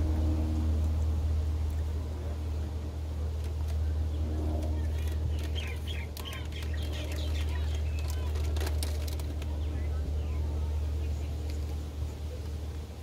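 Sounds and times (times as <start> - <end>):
faint distant voices: 0.0 - 13.0
low rumble: 0.0 - 13.0.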